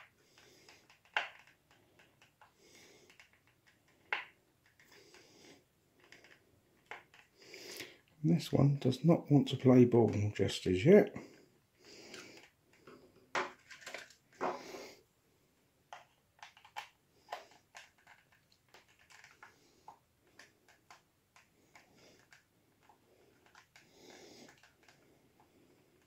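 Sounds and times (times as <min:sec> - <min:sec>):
plastic clicks and taps: 0:00.0 - 0:05.3, 0:15.9 - 0:25.5.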